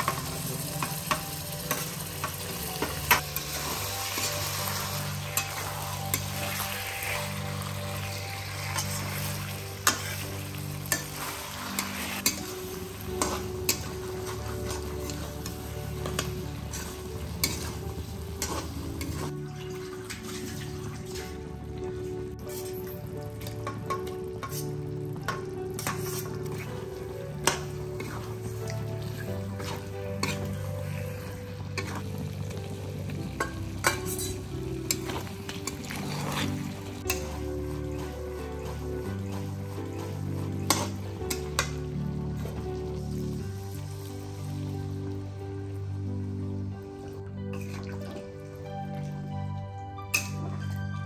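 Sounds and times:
spatula scraping a pan: 0:00.0 - 0:19.4, 0:22.4 - 0:25.1, 0:25.7 - 0:42.6
background music: 0:00.0 - 0:51.0
meat sizzling in a pan: 0:00.0 - 0:51.0.

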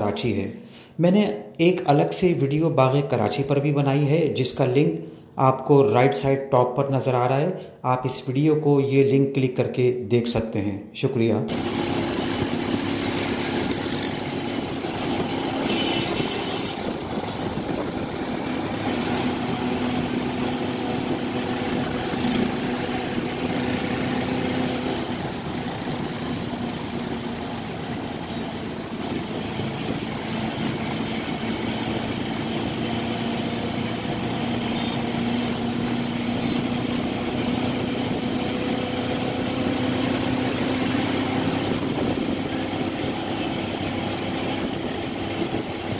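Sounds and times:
road noise: 0:11.5 - 0:45.9
vehicle engine hum: 0:11.5 - 0:45.9
vehicles passing: 0:11.5 - 0:45.9.

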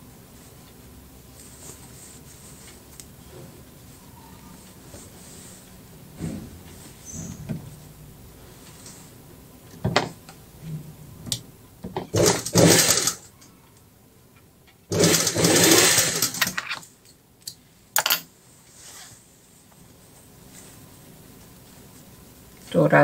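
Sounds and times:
sewing machine stitching: 0:12.1 - 0:13.3, 0:14.9 - 0:16.6.

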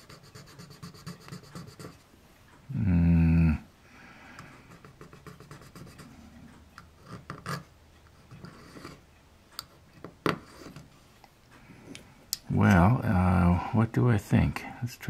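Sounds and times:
fingernail scratching metal: 0:00.0 - 0:02.0, 0:04.8 - 0:09.1.

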